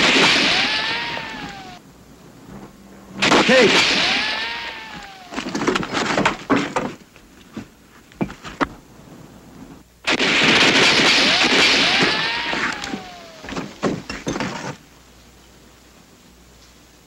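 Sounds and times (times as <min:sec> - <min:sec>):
sharp shellfire cracks: 0:00.0 - 0:01.8, 0:03.2 - 0:06.5, 0:10.1 - 0:14.1
incoming shell whistle: 0:02.9 - 0:05.6.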